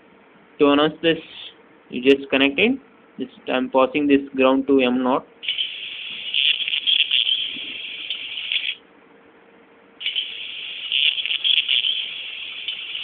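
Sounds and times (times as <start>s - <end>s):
small speaker buzzing harshly: 5.4s - 8.8s, 10.0s - 13.0s.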